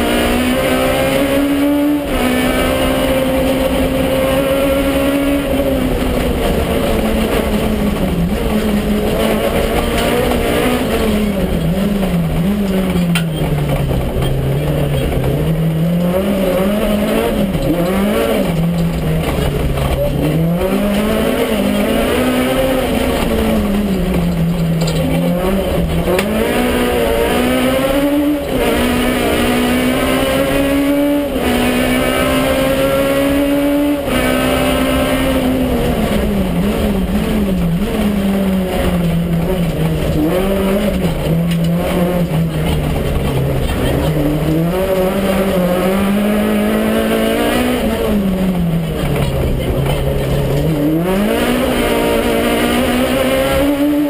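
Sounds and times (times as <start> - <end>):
rally car engine revving: 0.0 - 54.0.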